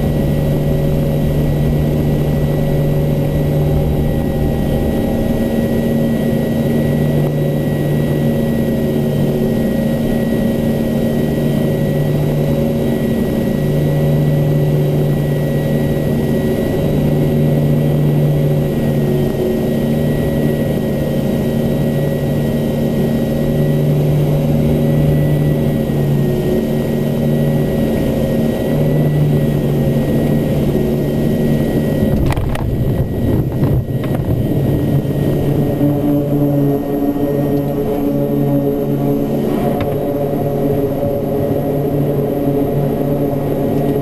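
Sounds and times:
thin high whine: 0.0 - 44.0
turboprop engines droning: 0.0 - 44.0
plane landing thump: 32.1 - 34.6.

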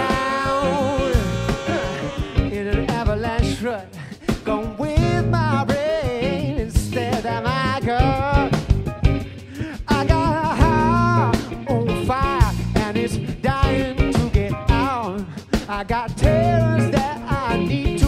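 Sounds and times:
horn section riff: 0.0 - 2.9
funk band playing: 0.0 - 18.0.

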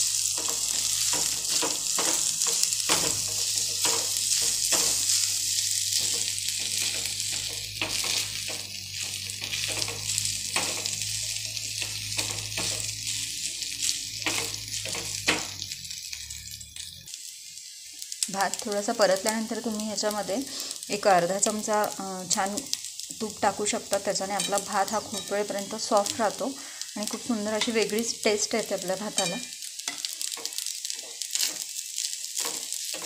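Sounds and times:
rice sizzling in oil: 0.0 - 33.0
spatula scraping and tapping pan: 0.2 - 5.3, 5.9 - 15.7, 24.4 - 26.2, 29.0 - 33.0.

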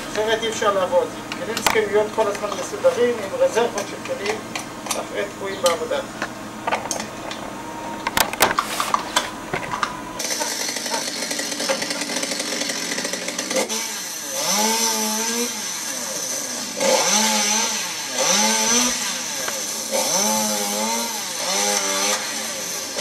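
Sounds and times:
chainsaw revving: 0.0 - 23.0
metal clicks and knocks: 5.7 - 10.0.

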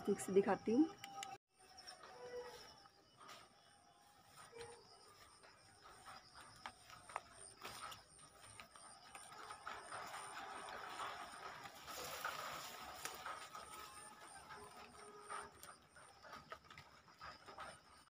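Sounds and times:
rustling of grass and leaves: 10.9 - 14.3.

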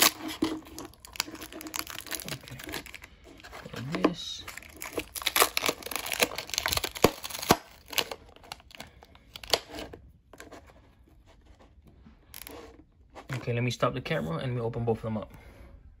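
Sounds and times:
plastic wrap crinkling: 0.0 - 9.8.

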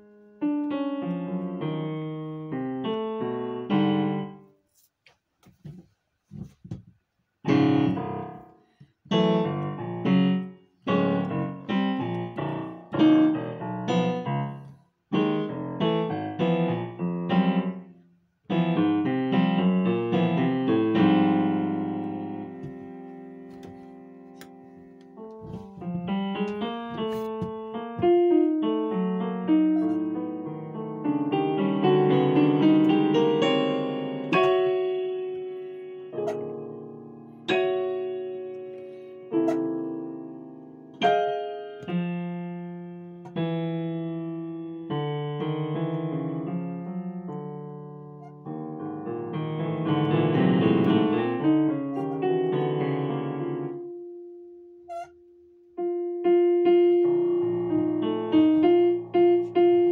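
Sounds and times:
digital piano chords: 0.0 - 4.5, 7.5 - 17.9, 18.5 - 54.3, 54.9 - 55.1, 55.7 - 59.9.

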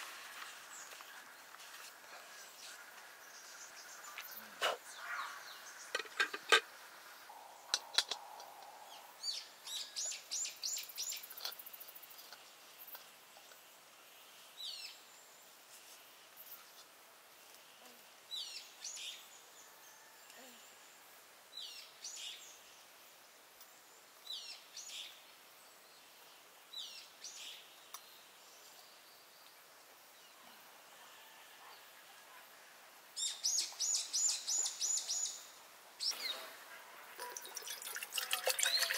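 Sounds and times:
bird chirps: 33.2 - 36.5.

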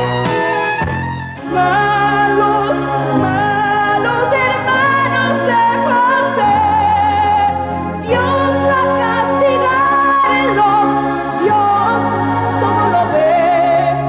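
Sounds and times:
band accompaniment: 0.0 - 14.0
man and woman singing duet: 1.4 - 14.0.

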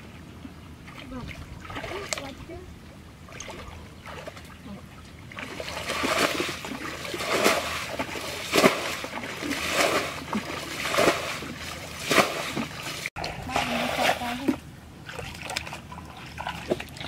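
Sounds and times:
wet splashes of muddy water: 5.3 - 17.0.

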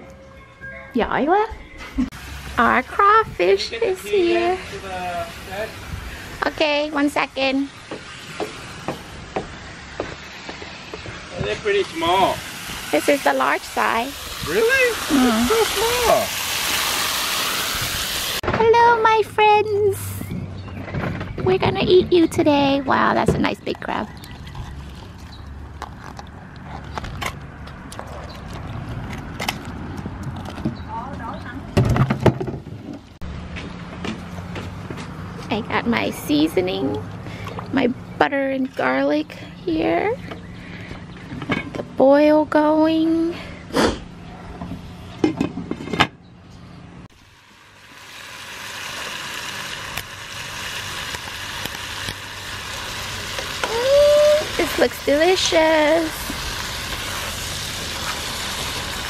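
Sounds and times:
food sizzling in a skillet: 2.1 - 18.4, 47.2 - 59.0.

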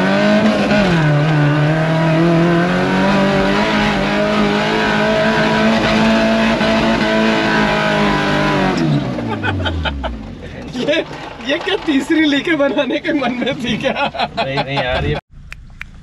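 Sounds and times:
engine revving under load: 0.0 - 12.2.

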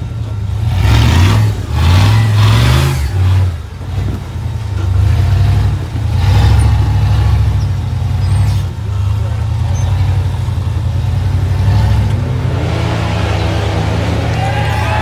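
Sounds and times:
buggy engine revving loudly: 0.0 - 15.0.

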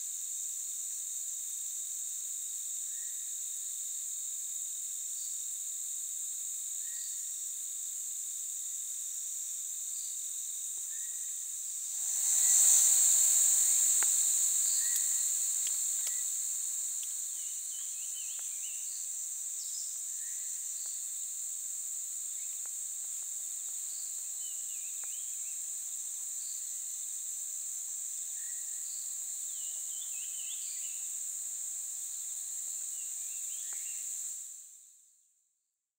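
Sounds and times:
high-pitched insect chorus: 0.0 - 35.2
thin drone: 11.9 - 16.2.

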